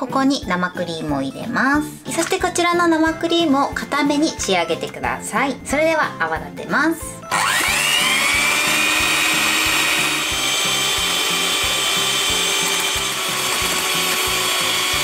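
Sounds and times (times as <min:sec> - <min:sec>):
electric hand mixer whine: 0:07.3 - 0:15.0.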